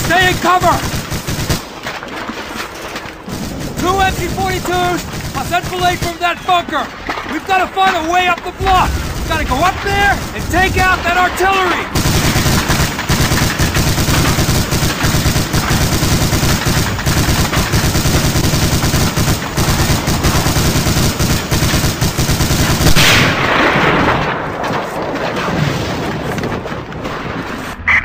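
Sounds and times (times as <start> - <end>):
machine-gun fire: 0.0 - 27.4
loud blast: 8.5 - 17.8, 22.9 - 24.6.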